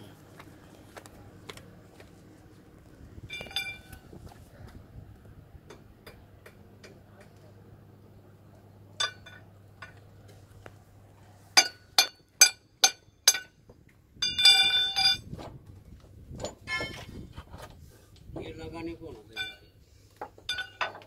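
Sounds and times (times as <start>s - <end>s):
low steady hum: 0.0s - 21.0s
spanner clinking on steel: 3.3s - 4.0s, 14.2s - 15.2s, 20.5s - 21.0s.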